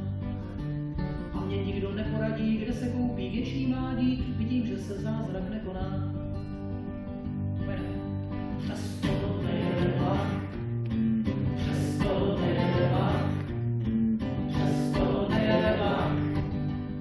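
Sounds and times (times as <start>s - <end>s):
acoustic guitar strumming: 0.0s - 17.0s
man singing: 1.2s - 6.2s, 7.6s - 13.6s, 14.5s - 16.6s.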